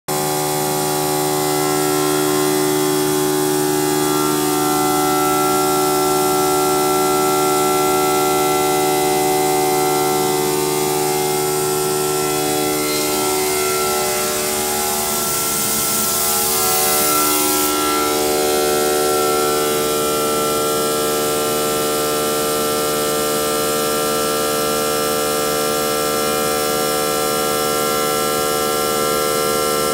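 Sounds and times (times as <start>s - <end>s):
stone router spindle whining: 0.2s - 21.8s.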